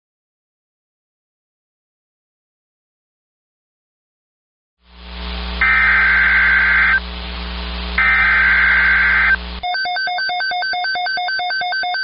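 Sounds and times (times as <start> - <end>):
receiver hiss and hum: 4.8 - 9.6
warbling data bursts: 5.6 - 9.7
pulsing electronic beeping: 8.0 - 12.0.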